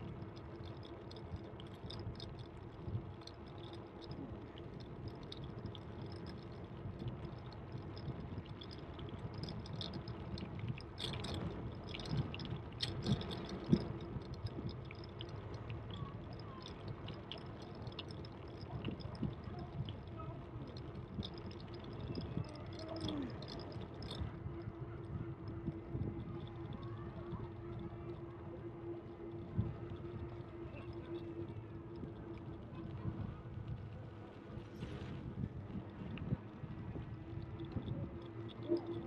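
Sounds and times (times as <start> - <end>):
bicycle tyres rolling: 0.0 - 39.0
clicks and rattles: 7.9 - 24.3.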